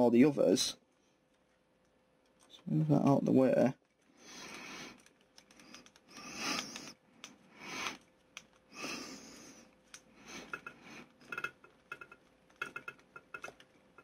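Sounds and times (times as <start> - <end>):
person breathing through nose: 4.2 - 8.0, 8.7 - 11.2.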